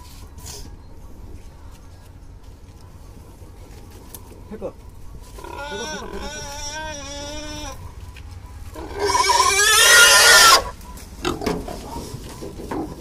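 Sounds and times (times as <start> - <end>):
pig squealing: 5.3 - 7.8, 8.8 - 11.4.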